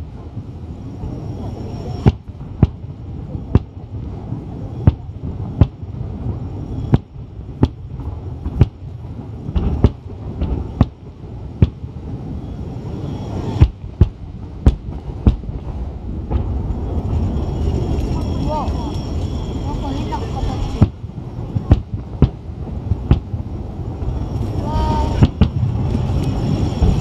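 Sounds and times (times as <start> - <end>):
low rumble: 0.0 - 27.0
firework shells bursting: 1.0 - 12.2, 13.0 - 27.0.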